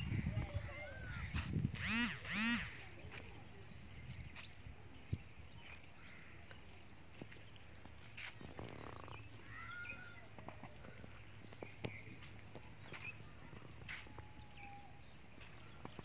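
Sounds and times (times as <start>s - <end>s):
sharp clicks: 1.8s - 2.8s.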